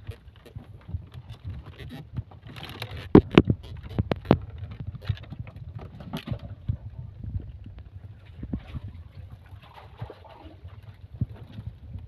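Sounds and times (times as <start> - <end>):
low rumble: 3.2 - 12.0.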